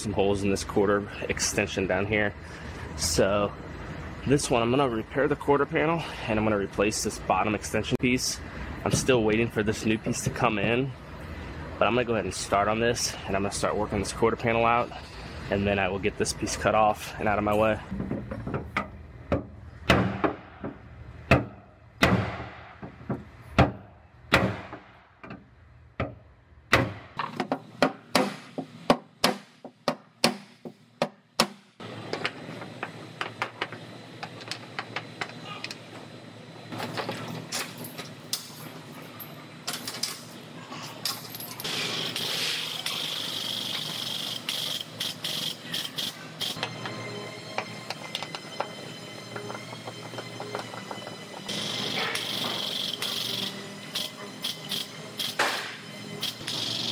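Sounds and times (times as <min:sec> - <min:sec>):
steady background noise: 0:00.0 - 0:56.9.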